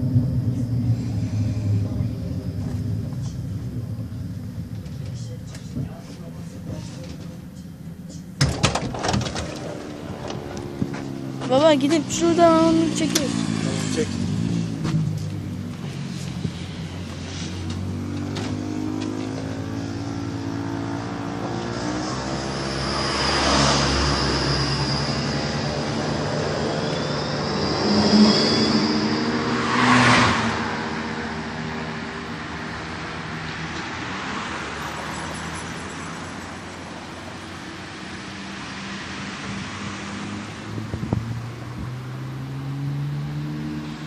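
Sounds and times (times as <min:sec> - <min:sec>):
tram motors whining: 0:00.0 - 0:33.2
wheels rumbling on rails: 0:00.0 - 0:44.0
thin high tone: 0:22.3 - 0:29.9.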